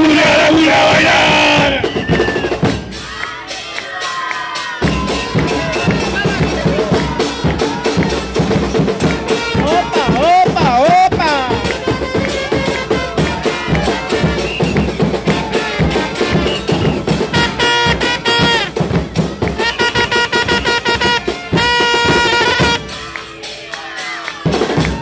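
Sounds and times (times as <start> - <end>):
upbeat dance music: 9.3 - 13.8.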